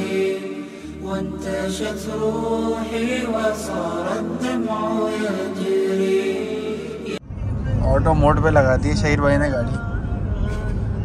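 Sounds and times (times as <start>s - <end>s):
unaccompanied vocal chanting: 0.0s - 7.8s.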